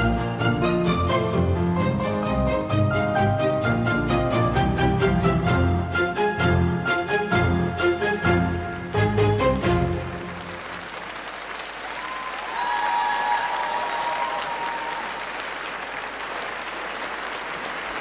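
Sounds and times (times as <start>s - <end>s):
music: 0.0s - 11.4s
audience applauding: 9.4s - 18.0s.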